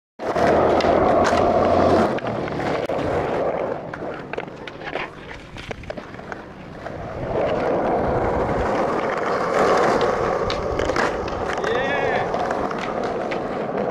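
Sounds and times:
skateboard clicks and clacks: 0:00.2 - 0:13.9
skateboard wheels rolling on concrete: 0:00.2 - 0:13.9.

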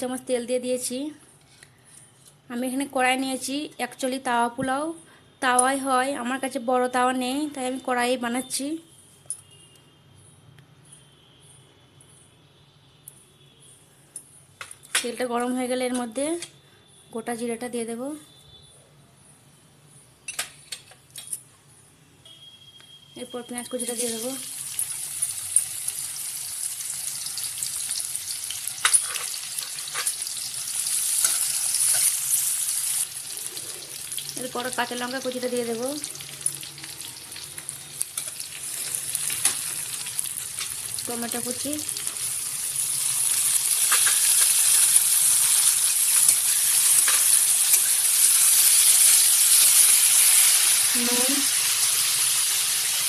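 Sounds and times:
onions sizzling in hot oil: 0:23.4 - 0:53.0.

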